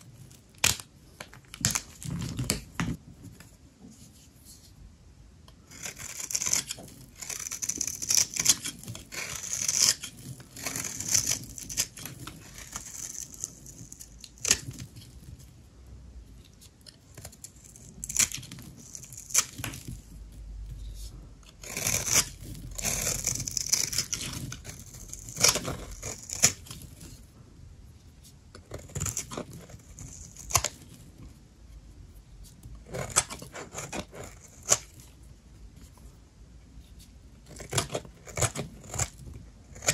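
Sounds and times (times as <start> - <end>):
dry soap crackling: 5.7 - 15.6, 16.6 - 27.2, 28.7 - 31.2, 37.4 - 39.9.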